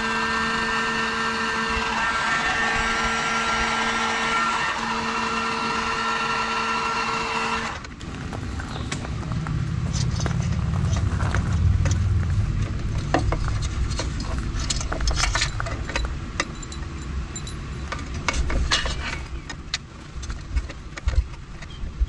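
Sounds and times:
passing vehicle rumble: 8.0 - 18.2.

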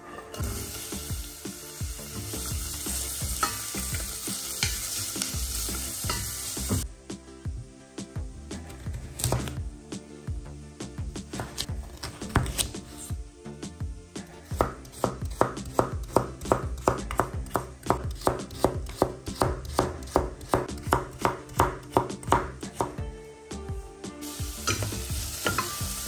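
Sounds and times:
background music: 0.0 - 26.0
knife chopping food: 9.0 - 9.6, 14.5 - 23.0.

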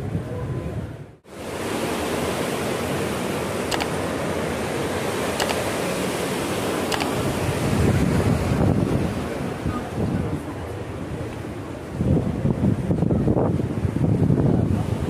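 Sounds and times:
faint clicks: 3.7 - 3.9, 5.4 - 5.6, 6.9 - 7.1.

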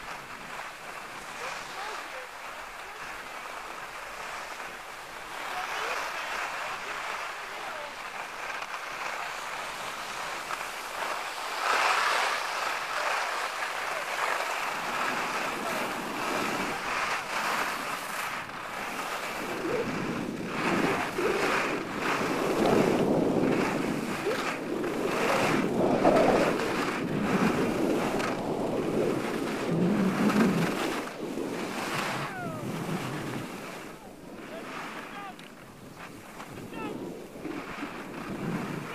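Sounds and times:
skis scraping on snow: 0.0 - 38.9
wind on microphone: 9.3 - 38.9.

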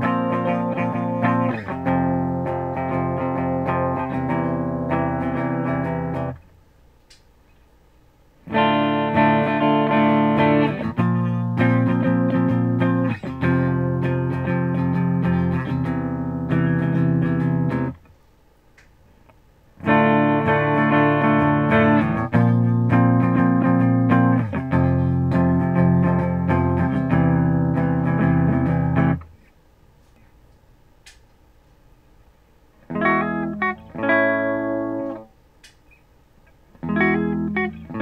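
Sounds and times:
clean electric guitar chords: 0.0 - 6.4, 8.4 - 18.0, 19.8 - 29.3, 32.8 - 35.3, 36.8 - 38.0.

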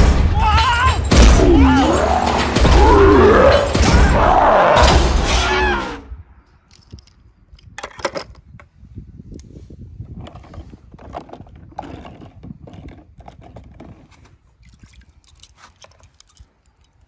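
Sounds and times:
crashing hits: 0.0 - 6.1
wailing sounds rising and falling: 1.3 - 6.1
toy car clattering: 6.7 - 8.7.

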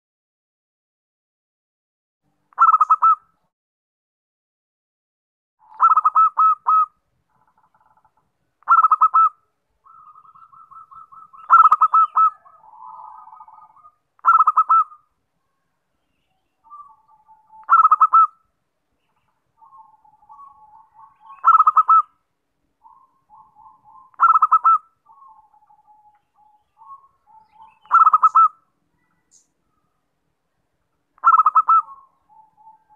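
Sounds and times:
dove cooing in clipped phrases: 2.6 - 3.2, 5.6 - 6.9, 8.6 - 9.3, 9.9 - 15.0, 17.3 - 18.3, 19.6 - 22.0, 23.3 - 28.5, 31.2 - 32.9.

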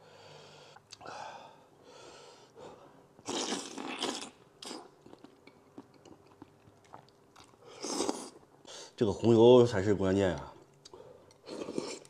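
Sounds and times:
person slurping and sucking: 3.2 - 4.9, 7.7 - 8.4.

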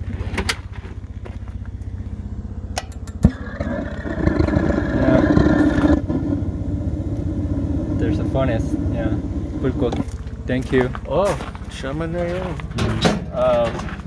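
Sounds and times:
low pulsing rumble: 0.0 - 14.0
rushing hum: 0.0 - 14.0.

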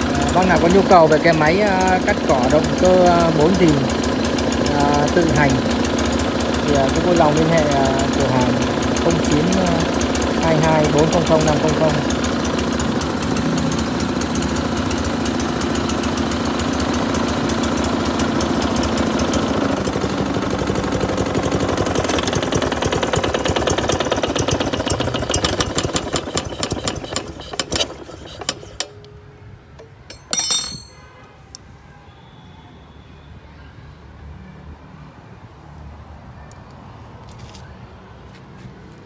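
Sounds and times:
small petrol engine running: 0.0 - 31.1.

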